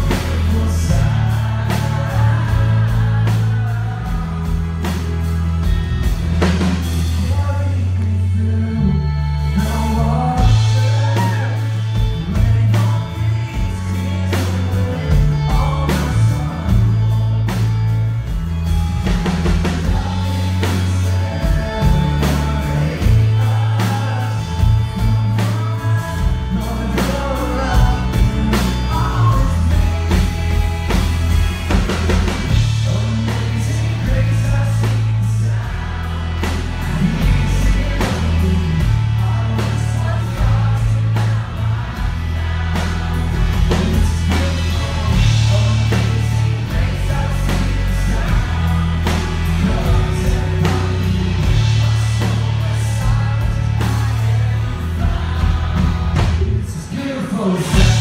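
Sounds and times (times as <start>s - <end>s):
booming bass line: 0.0s - 58.0s
drums: 0.0s - 58.0s
electric and acoustic guitars: 0.0s - 58.0s
lead vocal singing: 0.0s - 58.0s.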